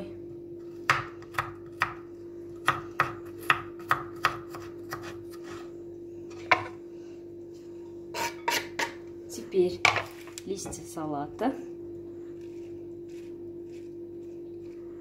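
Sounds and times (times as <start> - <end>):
faint steady hum: 0.0 - 15.0
knife chopping on wooden board: 0.9 - 2.0, 2.6 - 5.5.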